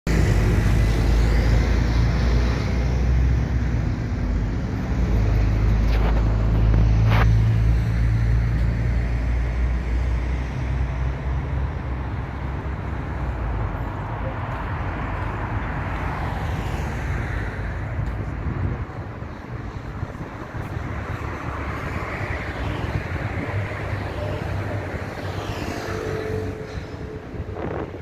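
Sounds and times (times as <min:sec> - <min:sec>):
road traffic rumble: 0:00.1 - 0:28.0.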